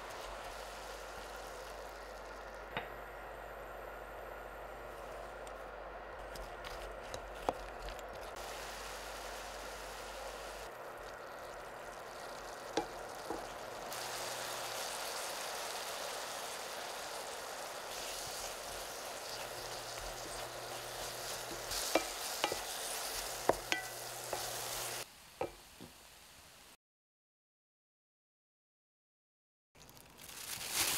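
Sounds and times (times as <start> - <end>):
apples sizzling in a pot: 0.0 - 26.8, 29.8 - 30.9
wooden spatula knocking a pot: 23.4 - 24.5.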